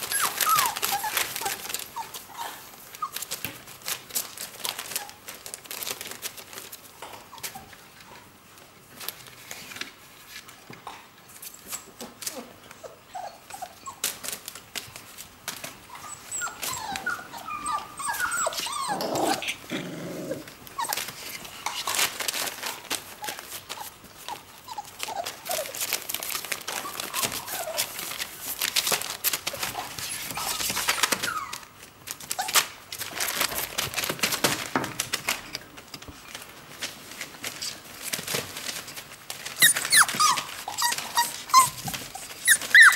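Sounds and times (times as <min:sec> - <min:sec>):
puppies whining: 0:00.0 - 0:03.4, 0:11.6 - 0:14.5, 0:15.7 - 0:28.3, 0:29.4 - 0:32.7, 0:39.5 - 0:42.9
newspaper crinkling: 0:00.0 - 0:07.6, 0:20.6 - 0:42.9.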